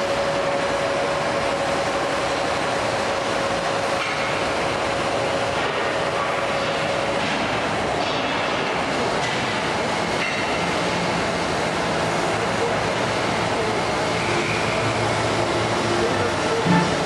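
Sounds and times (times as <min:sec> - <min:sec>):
machine running rumble: 0:09.5 - 0:17.0.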